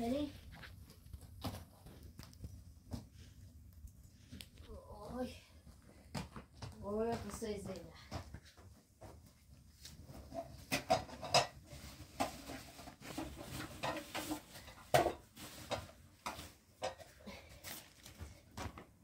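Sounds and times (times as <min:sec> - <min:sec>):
pots and utensils clattering: 0:10.1 - 0:17.2
plastic bag rustling: 0:11.6 - 0:16.8.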